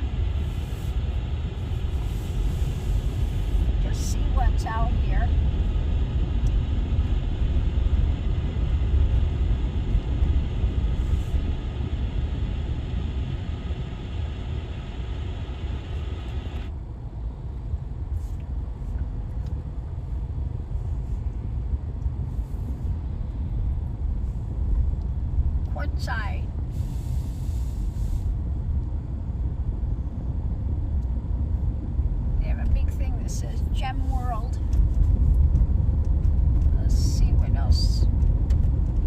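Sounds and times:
car cabin road rumble: 0.0s - 39.0s.

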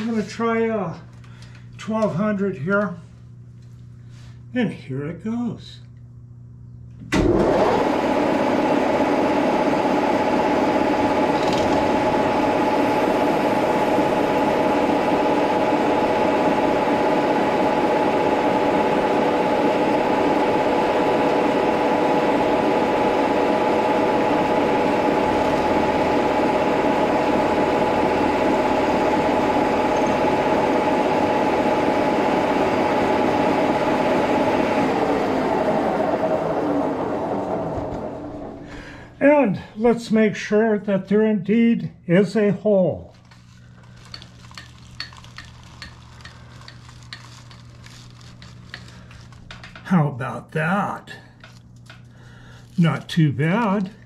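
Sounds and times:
milling machine whine: 7.1s - 39.7s.

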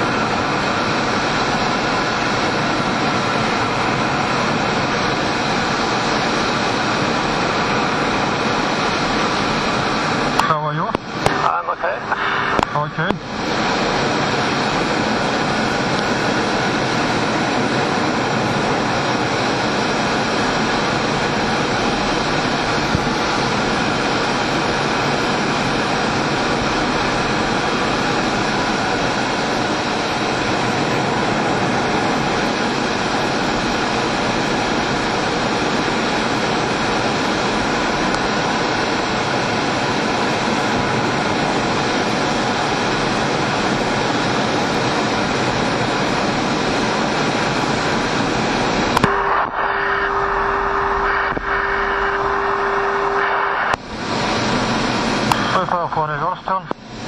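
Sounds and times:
jet engine rushing: 0.0s - 57.0s
steady single tone: 49.0s - 53.8s.

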